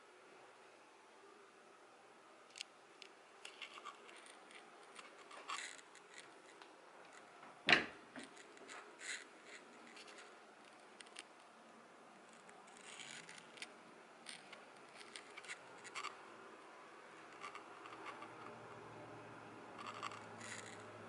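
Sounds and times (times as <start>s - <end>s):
sliding closet door clicks and scraping: 7.4s - 8.9s.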